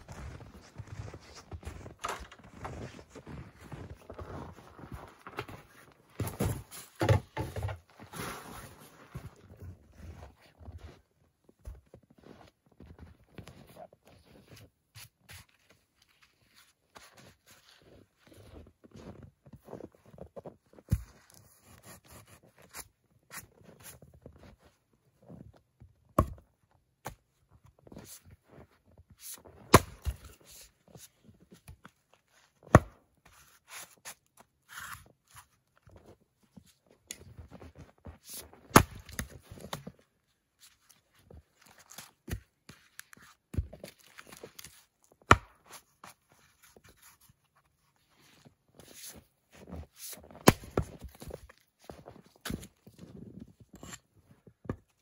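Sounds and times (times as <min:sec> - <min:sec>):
footsteps crunching in snow: 0:00.0 - 0:07.0, 0:07.9 - 0:24.6
axe splitting firewood: 0:26.1 - 0:26.4, 0:29.6 - 0:30.4, 0:32.6 - 0:34.0, 0:38.3 - 0:40.0, 0:43.5 - 0:47.0, 0:50.3 - 0:51.4.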